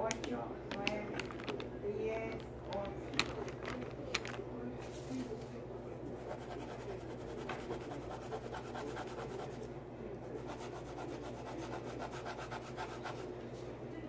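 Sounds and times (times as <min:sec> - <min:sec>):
pencil scratching on paper: 0:06.2 - 0:09.6, 0:10.4 - 0:13.3.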